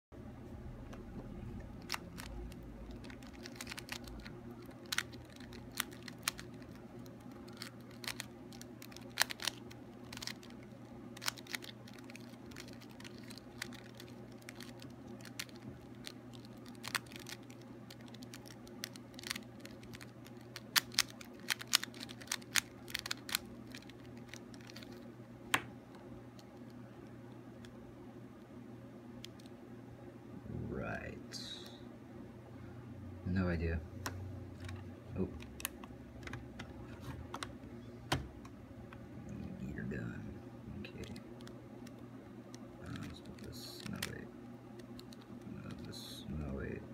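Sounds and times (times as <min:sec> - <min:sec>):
steady low hum: 0:00.1 - 0:46.9
puzzle cube clicking: 0:01.7 - 0:25.7, 0:42.8 - 0:44.2.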